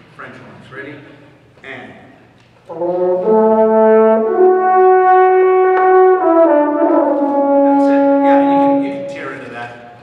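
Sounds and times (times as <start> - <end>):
wind ensemble holding chords: 2.7 - 9.5.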